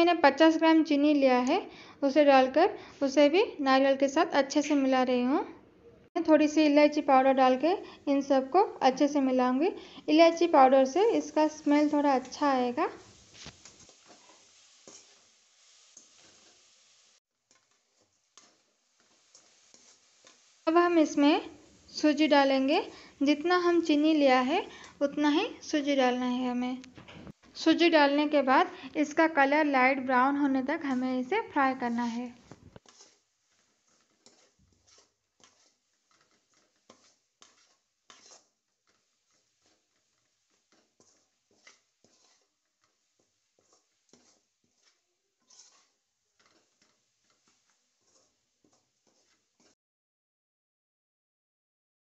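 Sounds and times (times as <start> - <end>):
metal spatula scraping a pan: 9.7 - 25.9, 28.7 - 49.8.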